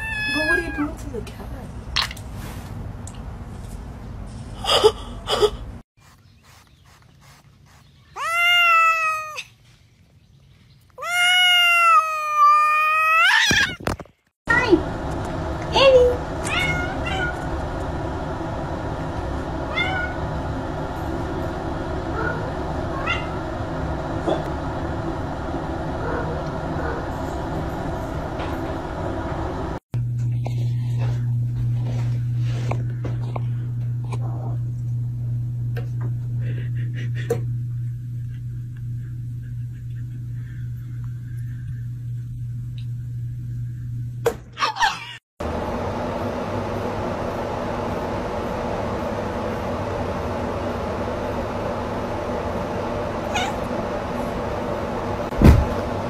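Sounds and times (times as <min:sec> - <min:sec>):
cat meowing loudly: 0:00.0 - 0:00.9, 0:08.2 - 0:09.5, 0:11.0 - 0:13.8.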